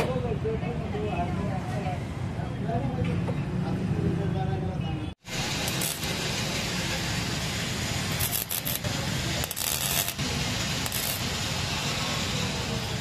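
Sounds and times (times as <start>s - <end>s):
welding arc crackling and sizzling: 5.3s - 13.0s.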